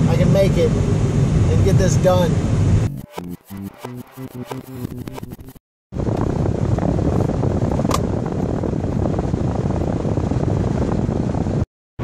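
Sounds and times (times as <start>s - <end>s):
car ventilation fan rushing: 6.0s - 11.6s.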